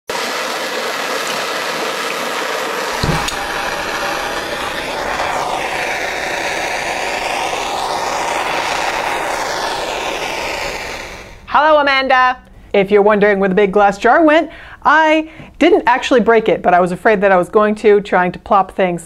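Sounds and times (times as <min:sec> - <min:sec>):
molten metal hissing: 0:02.3 - 0:11.5
thump: 0:03.0 - 0:05.6.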